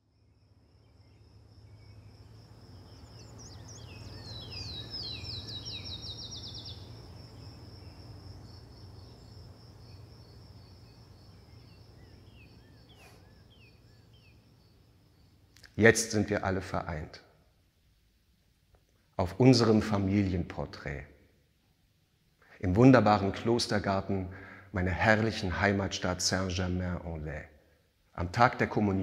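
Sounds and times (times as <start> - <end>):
high insect trill: 0.0 - 18.2
songbird chirping: 0.0 - 29.0.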